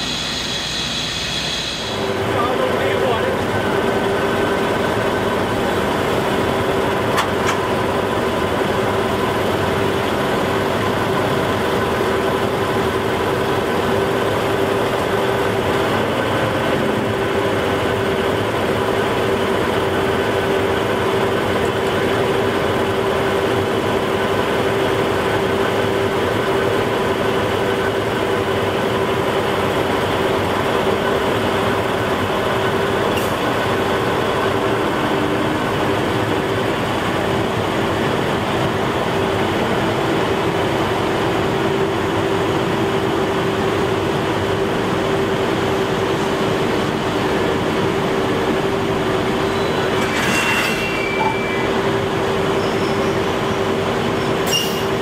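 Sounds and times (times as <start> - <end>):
steady hum: 0.0 - 4.2
diesel locomotive idling: 0.0 - 55.0.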